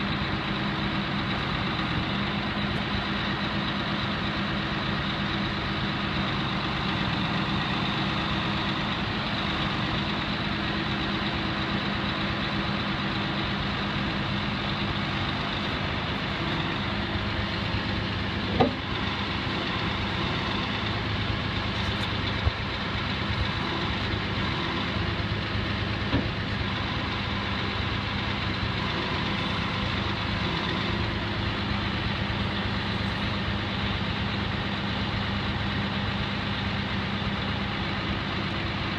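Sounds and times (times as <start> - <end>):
truck diesel engine idling: 0.0 - 38.9.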